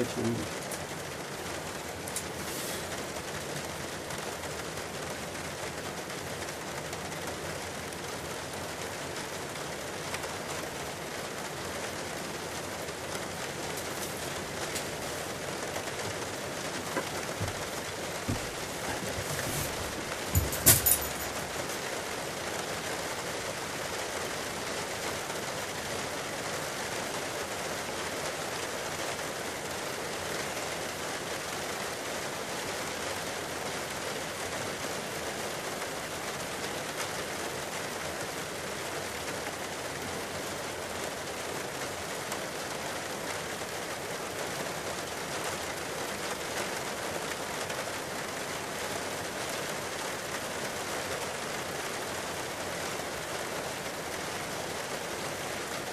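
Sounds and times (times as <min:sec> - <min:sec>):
running water rushing: 0:01.6 - 0:29.6.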